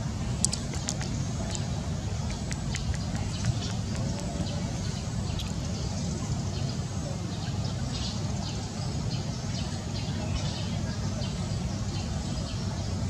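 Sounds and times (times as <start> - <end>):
steady low rumble: 0.0 - 8.7.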